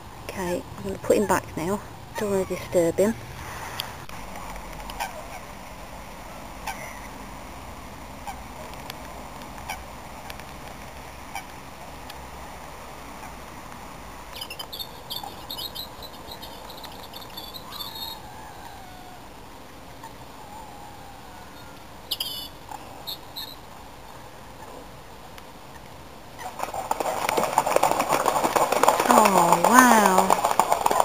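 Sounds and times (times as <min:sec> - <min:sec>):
small bird twittering: 0:14.3 - 0:18.3, 0:21.6 - 0:23.6.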